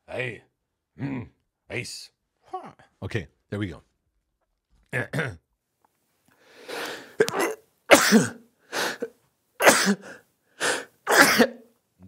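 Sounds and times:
man drawing in breath: 6.3 - 7.2
man sneezing: 6.7 - 11.7.

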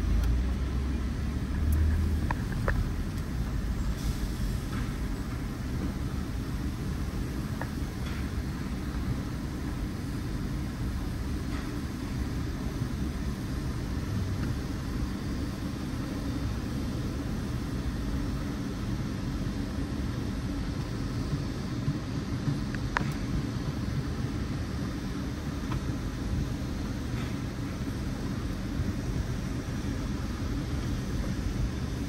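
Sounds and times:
car rumble from inside cabin: 0.0 - 6.8.

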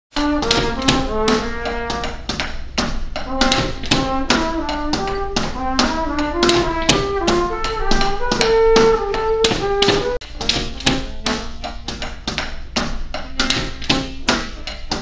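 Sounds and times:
trumpet playing held notes: 0.1 - 2.3, 3.2 - 11.7
drum kit playing: 0.1 - 15.0.

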